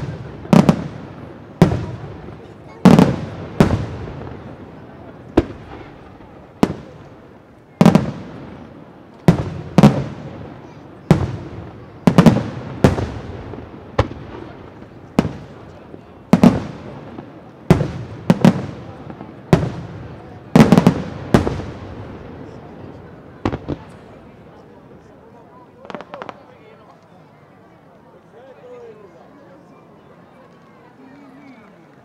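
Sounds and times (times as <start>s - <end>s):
firework shells booming: 0.0s - 22.3s.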